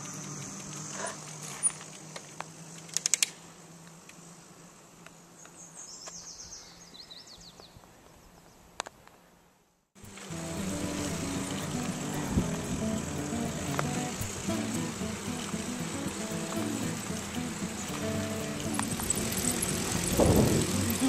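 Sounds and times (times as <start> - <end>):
rapid high ticking: 10.0 - 21.0.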